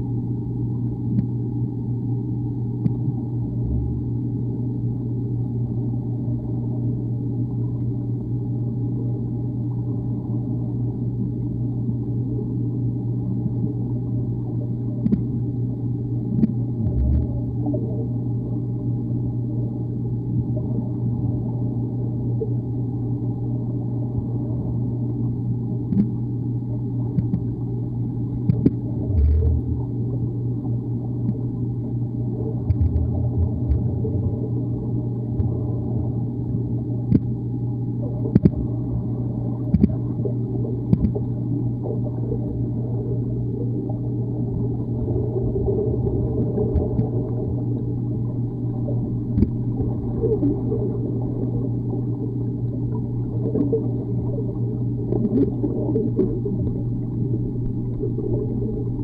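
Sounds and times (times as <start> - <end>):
underwater low rumble and hum: 0.0 - 59.0
faint clicks and knocks: 15.0 - 15.3, 25.9 - 26.2, 27.1 - 27.5, 28.4 - 29.7, 32.6 - 33.9, 35.3 - 35.6, 37.1 - 37.4, 38.2 - 38.6, 39.7 - 40.0, 40.9 - 41.4, 46.7 - 47.2, 49.3 - 50.5.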